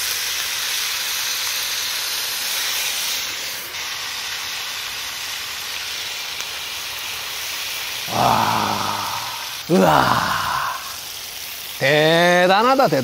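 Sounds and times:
food sizzling on a griddle: 0.0s - 13.0s.

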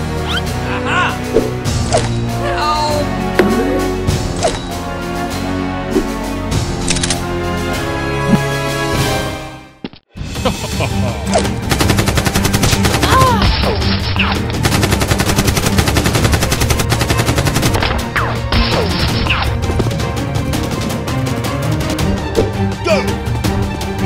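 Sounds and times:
background music: 0.0s - 24.0s
machine-gun fire: 11.6s - 13.4s, 14.6s - 18.1s.

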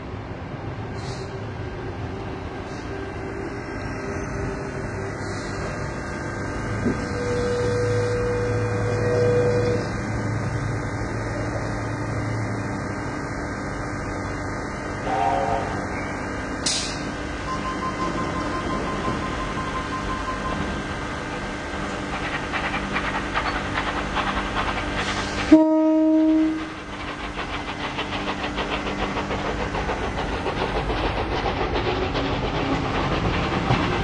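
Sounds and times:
steam locomotives running: 0.0s - 34.0s
steam whistle: 7.0s - 9.9s, 15.0s - 15.9s, 25.5s - 26.8s.

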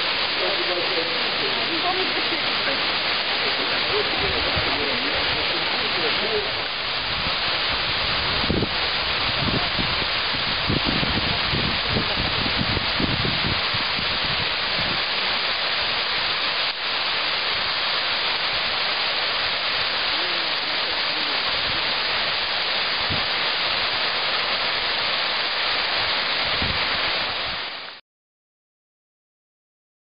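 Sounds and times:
fountain water rushing: 0.0s - 28.0s.

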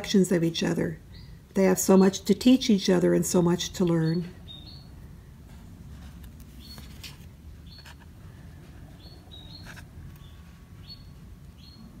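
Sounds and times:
canaries chirping: 3.8s - 5.0s, 6.5s - 7.0s, 8.8s - 12.0s
cards being handled: 6.0s - 8.2s.

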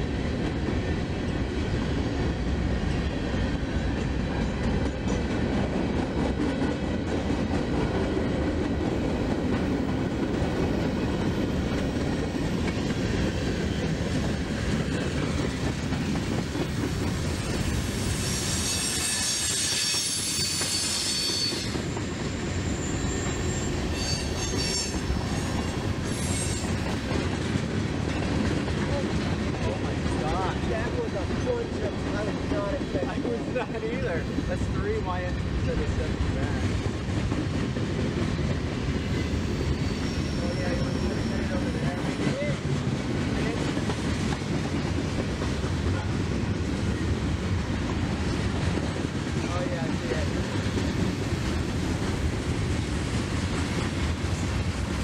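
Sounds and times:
freight train wheels rumbling: 0.0s - 55.0s
train wheels squealing: 16.8s - 27.1s, 38.3s - 42.6s.

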